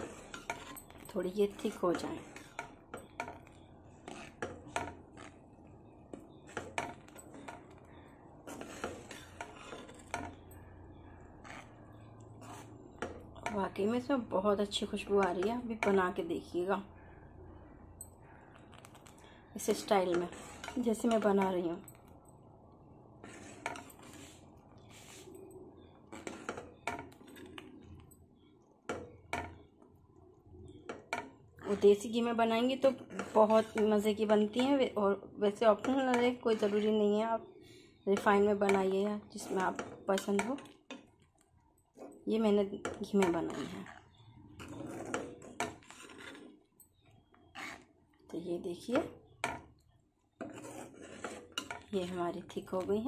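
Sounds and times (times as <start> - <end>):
metal ladle scraping a pan: 0.0 - 14.0, 18.8 - 21.6, 23.2 - 28.0, 30.9 - 37.1, 38.0 - 41.1, 42.0 - 46.6, 47.5 - 48.0, 50.3 - 51.9.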